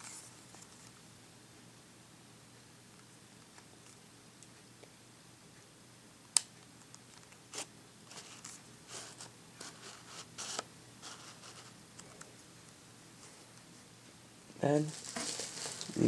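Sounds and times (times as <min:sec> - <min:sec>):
lens scraping and rubbing: 0:07.5 - 0:11.7.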